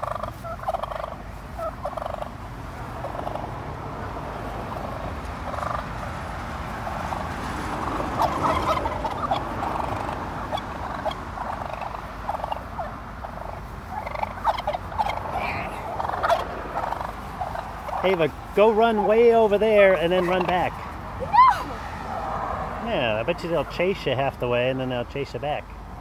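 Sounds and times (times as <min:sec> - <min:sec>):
wild turkeys calling: 0:00.0 - 0:03.6, 0:04.6 - 0:06.1, 0:06.7 - 0:21.7.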